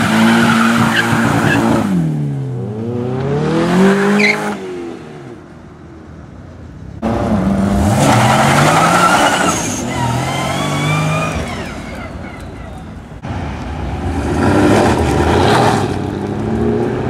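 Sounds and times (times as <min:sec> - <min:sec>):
car engine revving: 0:00.0 - 0:05.5, 0:07.0 - 0:17.0
tyres squealing: 0:08.1 - 0:13.2.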